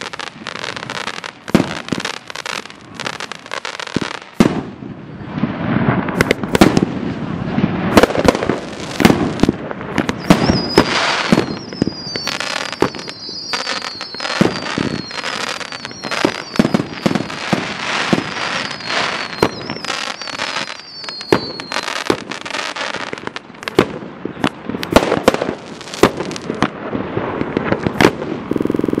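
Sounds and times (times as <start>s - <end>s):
fireworks bangs: 0.0s - 29.0s
fireworks crackling: 0.0s - 29.0s
falling firework whistles: 7.9s - 23.4s.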